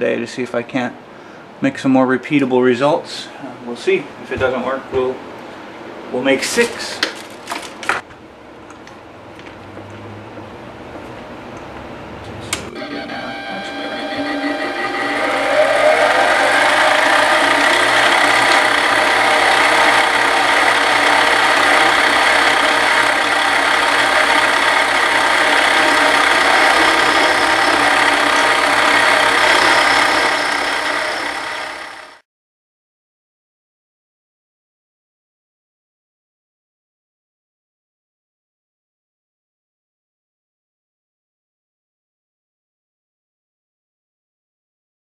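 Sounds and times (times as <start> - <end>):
lathe motor with gear whine: 12.7 - 32.2.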